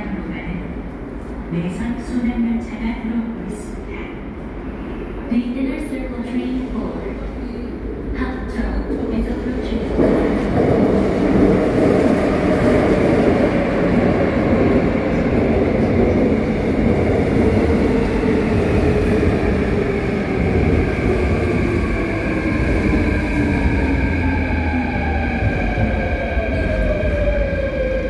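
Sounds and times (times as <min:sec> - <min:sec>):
train wheels rumbling on rail: 0:06.2 - 0:28.0.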